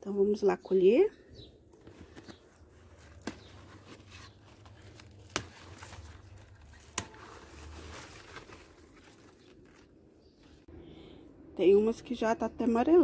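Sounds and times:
leaves rustling: 1.8 - 10.7
leaf stalks snapping: 3.0 - 9.9.

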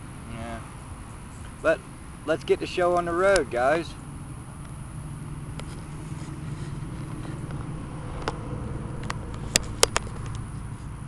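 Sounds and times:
camera handling rumble: 5.5 - 11.0
sharp clicks and knocks: 7.4 - 8.4, 9.0 - 10.6.

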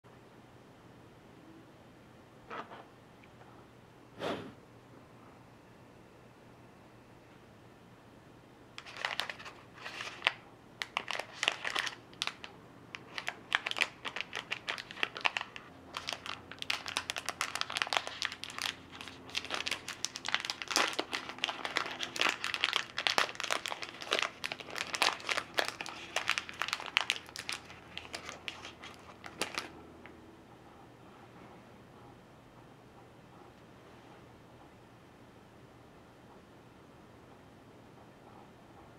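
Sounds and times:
plastic wrapper crinkling: 8.8 - 29.8.

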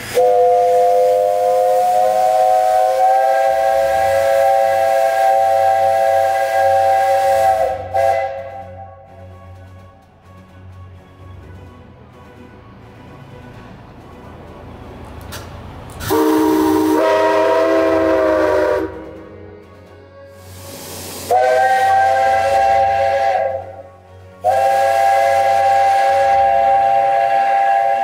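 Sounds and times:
steam hissing: 0.0 - 9.3, 16.0 - 28.0
steam whistle blasts: 0.0 - 9.6, 16.0 - 19.6, 20.2 - 28.0.

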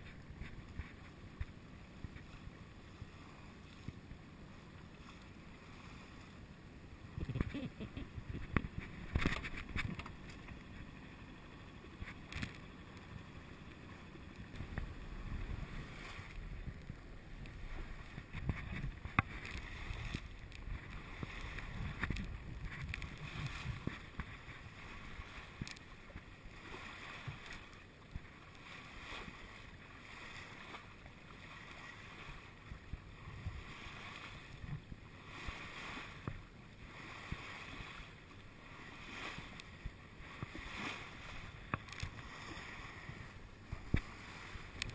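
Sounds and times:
water splashing along hull: 0.0 - 44.9
wind buffeting microphone: 7.1 - 10.8, 14.4 - 26.2, 39.0 - 44.9.

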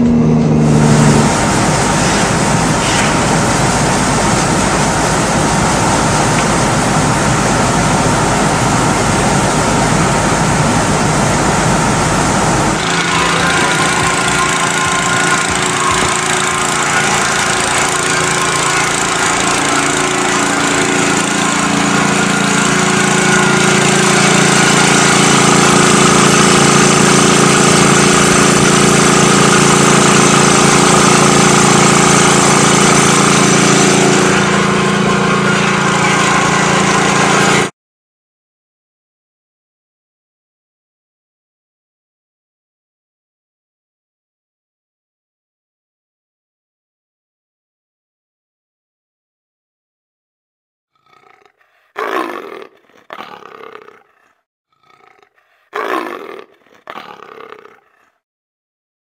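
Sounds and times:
loud steady noise: 0.0 - 37.7
machinery humming: 0.0 - 37.7.

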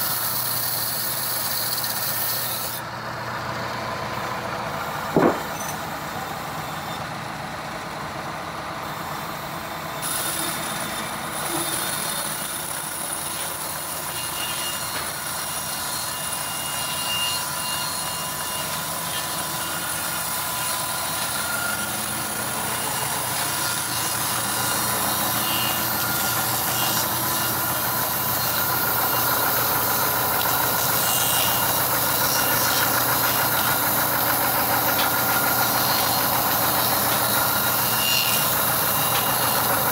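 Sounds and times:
band sawmill sawing log: 0.0 - 39.9
thin steady whine: 17.4 - 39.9.

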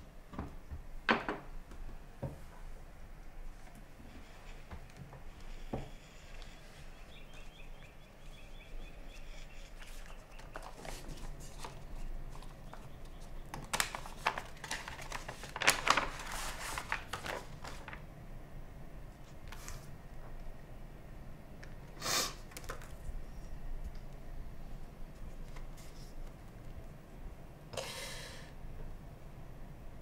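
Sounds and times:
paper envelope rustling: 9.2 - 18.1.

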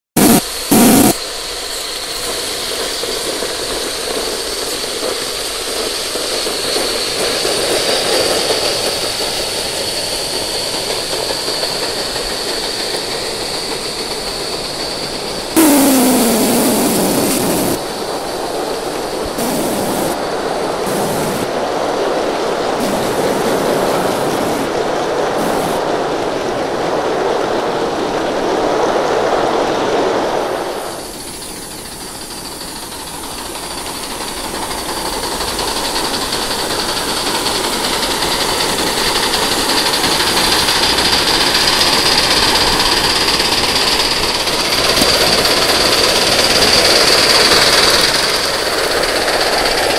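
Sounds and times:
high whine: 0.1 - 1.2, 15.6 - 17.9, 19.4 - 21.7, 22.7 - 25.9.

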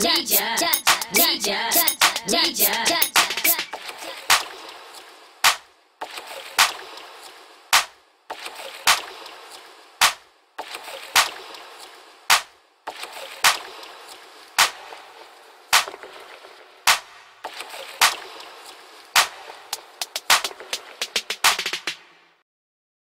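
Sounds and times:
reverberant claps: 5.4 - 5.7, 6.6 - 6.8, 7.8 - 8.0, 8.9 - 9.2, 10.0 - 10.2, 12.3 - 12.5, 14.6 - 15.0, 15.8 - 16.1, 16.9 - 17.4, 19.2 - 22.2.

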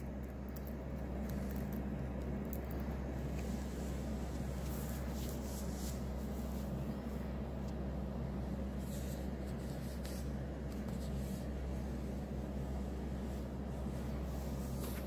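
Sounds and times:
bird scratching and nibbling: 0.0 - 6.8, 8.7 - 11.6
steady low hum: 0.0 - 15.0.

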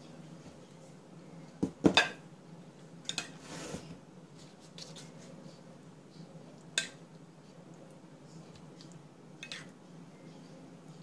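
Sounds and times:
faint low hum: 0.0 - 11.0
soft rustle: 3.4 - 5.6.

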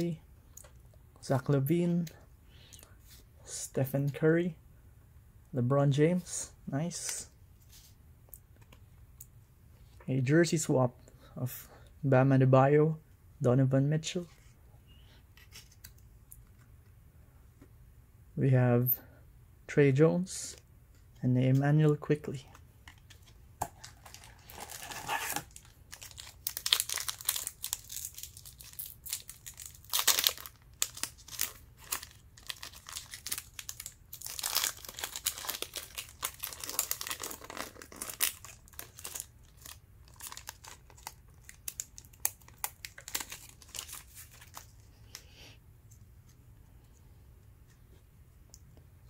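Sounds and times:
card pack wrapper crinkling: 22.9 - 45.2.

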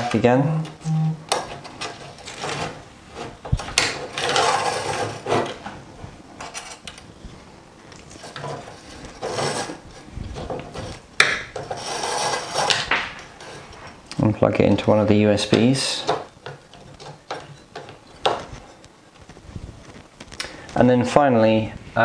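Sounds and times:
cable rubbing against metal: 8.0 - 11.0, 11.6 - 14.0.

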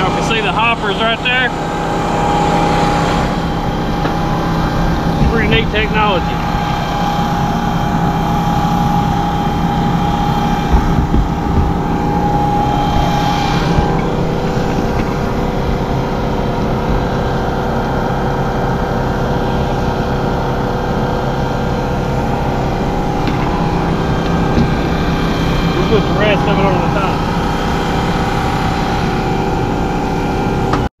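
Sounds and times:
thin steady whine: 0.0 - 30.9
vehicle engine droning: 0.0 - 30.9.

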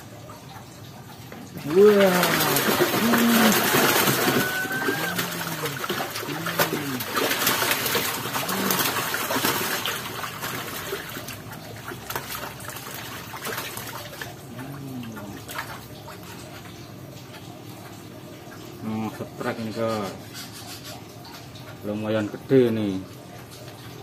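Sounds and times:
fish thrashing in water: 1.5 - 17.6.

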